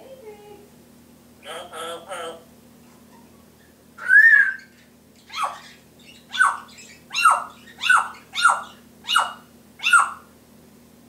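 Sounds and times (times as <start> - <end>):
parrot calling harshly: 4.0 - 10.3.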